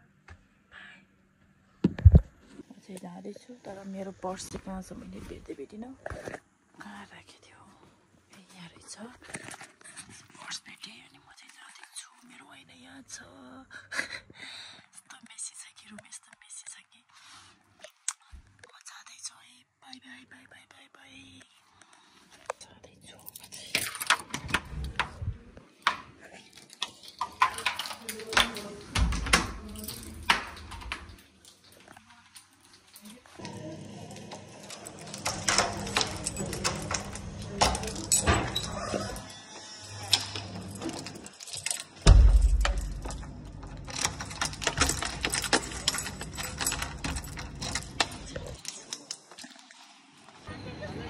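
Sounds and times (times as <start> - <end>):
keys jangling: 23.1 - 25.1, 26.4 - 49.6
door knocks and clatters: 27.4 - 31.2, 42.0 - 48.6
door handle and latch click: 40.1 - 48.5.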